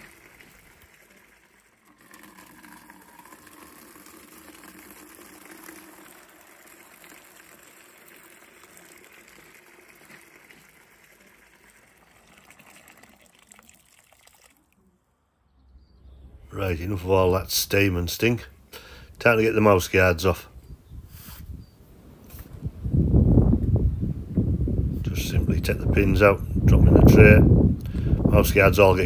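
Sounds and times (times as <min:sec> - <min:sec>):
water pouring into plastic bucket: 0:00.0 - 0:14.8.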